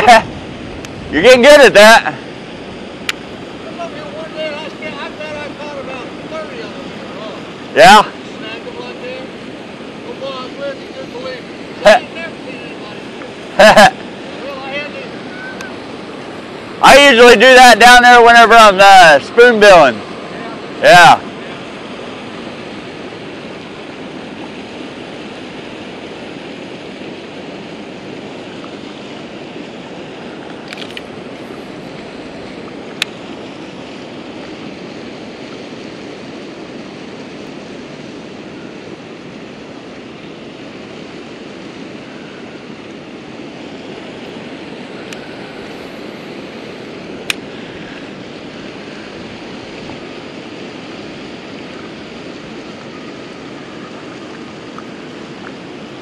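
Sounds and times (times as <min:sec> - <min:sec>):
water rushing over dam: 0:00.0 - 0:56.0
sharp clicks: 0:30.5 - 0:31.1.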